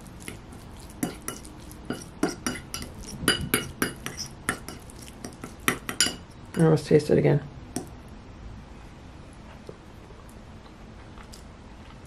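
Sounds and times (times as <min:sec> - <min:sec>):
fork mashing fish in bowl: 0:00.0 - 0:06.3
fork tines clinking on bowl: 0:01.0 - 0:06.4.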